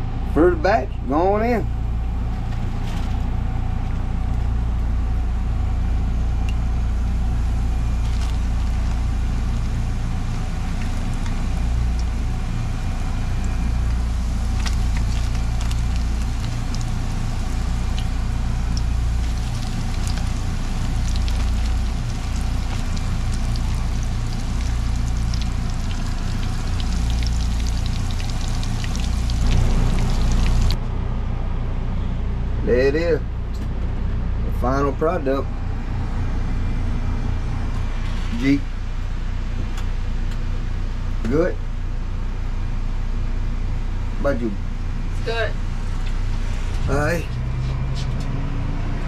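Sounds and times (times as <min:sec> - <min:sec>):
low rumble: 0:03.0 - 0:31.9
fish frying in grease: 0:07.1 - 0:30.8.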